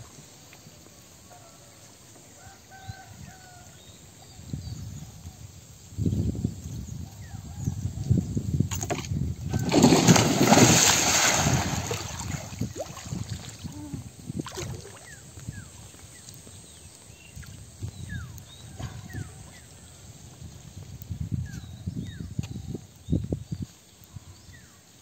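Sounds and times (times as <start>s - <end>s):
water splashing and sloshing: 8.7s - 15.5s.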